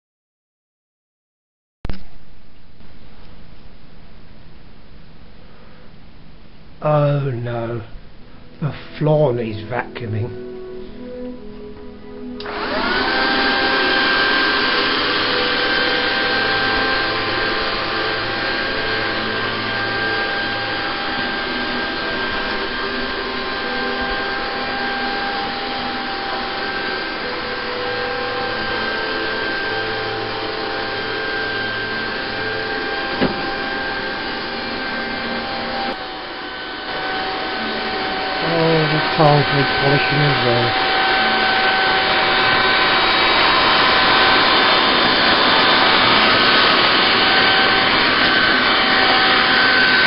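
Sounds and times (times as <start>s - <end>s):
robot vacuum motor whine: 12.4s - 50.0s.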